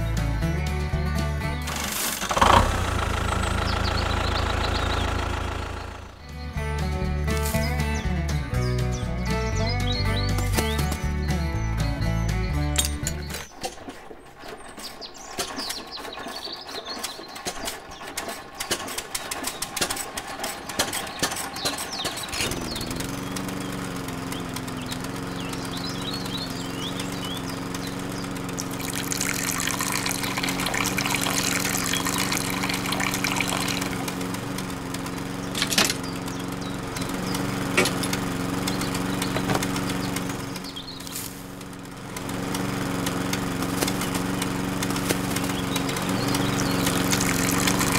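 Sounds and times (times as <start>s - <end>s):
small electric motor humming: 22.2s - 47.9s.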